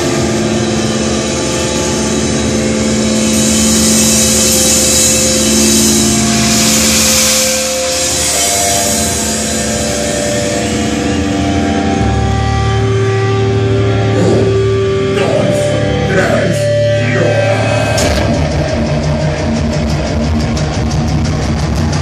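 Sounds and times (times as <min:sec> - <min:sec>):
distorted electric guitar chords: 0:00.0 - 0:22.0
fast dense drumming: 0:17.9 - 0:22.0.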